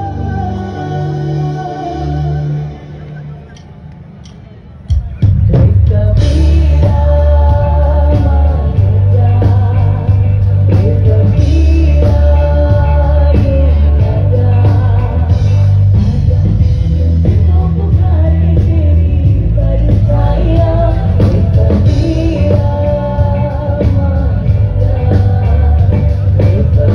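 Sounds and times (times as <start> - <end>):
person singing: 0.0 - 3.4, 5.0 - 26.9
live band music: 0.0 - 26.9
heavy bass and drums: 4.9 - 26.9.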